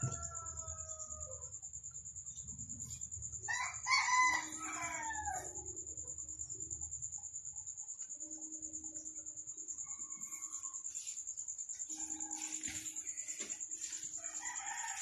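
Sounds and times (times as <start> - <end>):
rooster crowing: 0.0 - 1.6, 3.4 - 5.7, 14.2 - 15.0.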